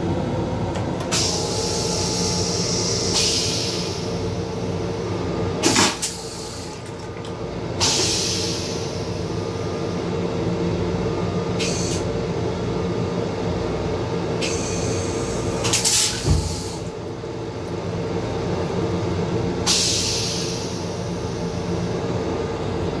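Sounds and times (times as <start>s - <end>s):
train car hum: 0.0s - 23.0s
toilet flush hisses: 5.6s - 6.8s, 7.8s - 9.0s, 14.4s - 16.9s, 19.7s - 20.8s.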